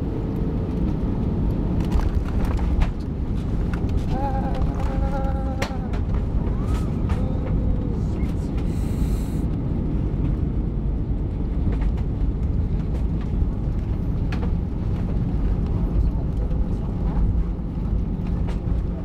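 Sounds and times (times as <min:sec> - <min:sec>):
airliner cabin rumble: 0:00.0 - 0:19.0.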